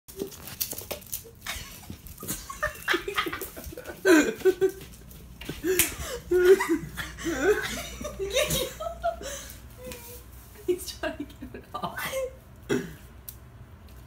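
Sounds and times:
people laughing and giggling: 0:01.4 - 0:10.0.

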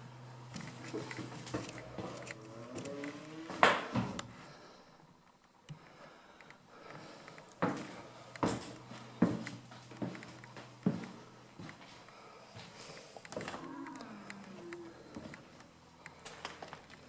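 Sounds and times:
footsteps on bare floor: 0:07.6 - 0:12.0.

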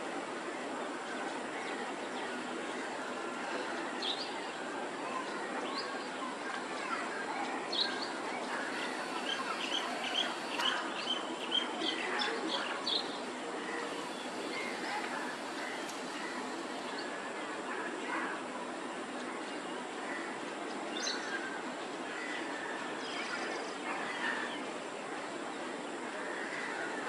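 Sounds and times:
outdoor background noise: 0:00.0 - 0:27.0
small birds chirping: 0:03.8 - 0:17.2.

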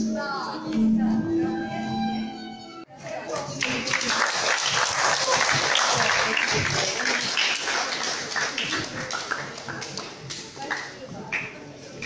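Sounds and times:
group applause: 0:03.0 - 0:11.6.

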